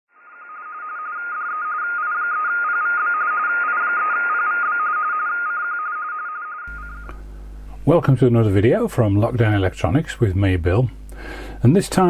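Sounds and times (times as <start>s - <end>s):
electronic data signal tones: 0.2s - 7.1s.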